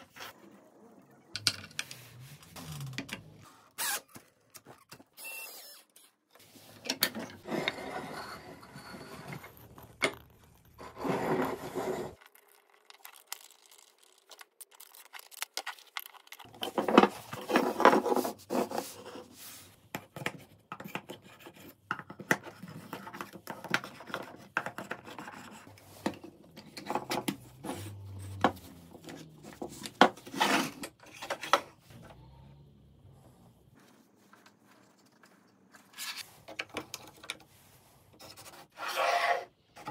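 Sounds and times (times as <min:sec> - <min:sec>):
wooden parts clicking and knocking: 0:01.4 - 0:02.0
rubbing and scraping on wood: 0:33.8 - 0:39.9.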